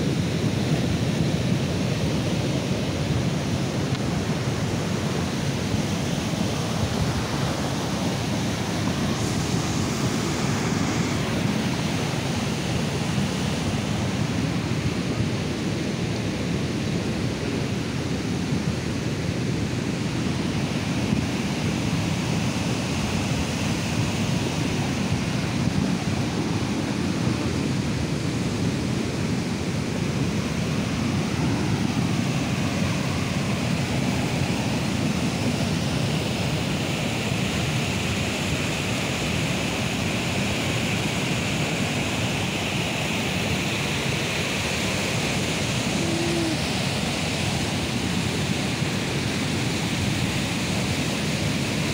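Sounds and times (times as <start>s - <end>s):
floodwater rushing: 30.0s - 51.9s.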